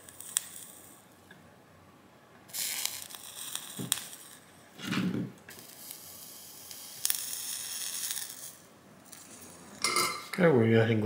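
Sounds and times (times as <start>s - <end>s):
sharp crackles: 0.0s - 1.0s, 2.5s - 4.5s, 5.5s - 9.6s
solder sizzling and hissing: 0.0s - 1.2s, 2.4s - 10.2s.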